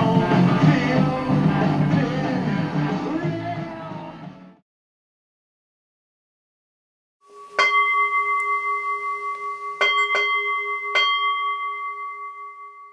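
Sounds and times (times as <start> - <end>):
bell ringing: 7.3 - 12.9.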